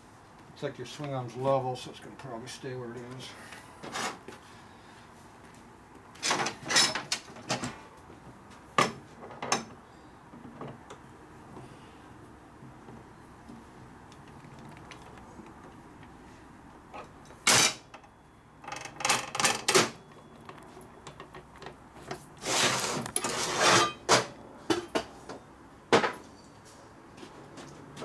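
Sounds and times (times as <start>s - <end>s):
metal tools clanking on steel: 6.2s - 7.2s, 23.2s - 25.1s.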